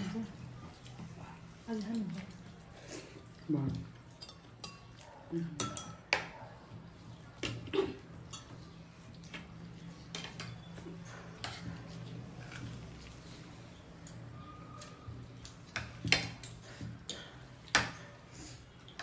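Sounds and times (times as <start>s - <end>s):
cutlery clinking on plate: 5.6s - 6.3s.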